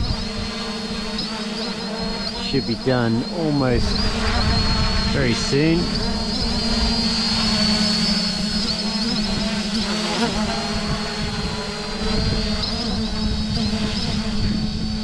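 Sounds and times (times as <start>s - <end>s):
drone motors buzzing: 0.0s - 15.0s.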